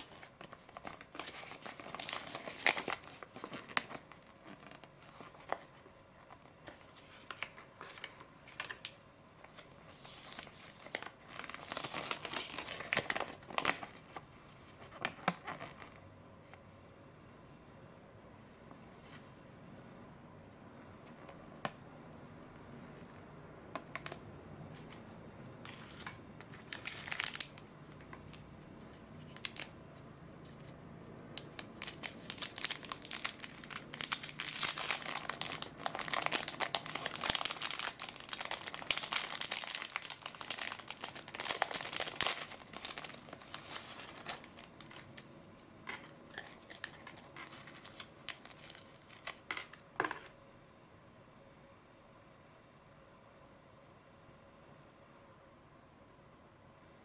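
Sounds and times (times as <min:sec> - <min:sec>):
paper and plastic crinkling: 0:00.0 - 0:16.0, 0:23.9 - 0:30.8, 0:31.4 - 0:50.3.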